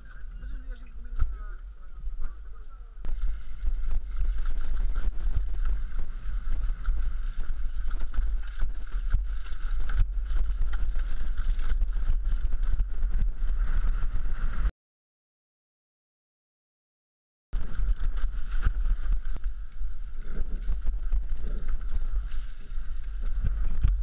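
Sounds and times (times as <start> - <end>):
wind rumble on microphone: 0.0 - 14.7, 17.6 - 24.0
bike rattling over rocks: 3.1 - 14.7, 17.6 - 24.0.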